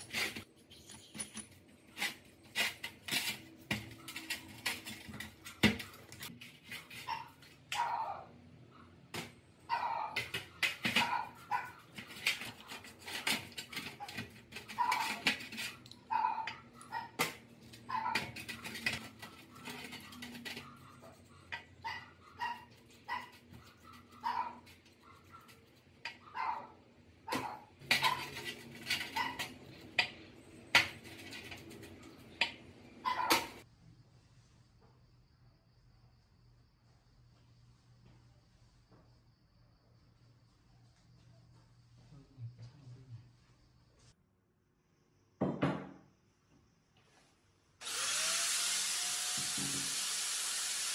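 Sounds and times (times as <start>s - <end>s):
metal parts clinking on tray: 0.7s - 1.7s
dog barking: 7.1s - 9.0s, 9.7s - 10.2s, 11.0s - 11.8s, 16.1s - 17.2s, 17.9s - 18.2s, 20.6s - 25.5s, 26.2s - 28.2s, 33.0s - 33.6s.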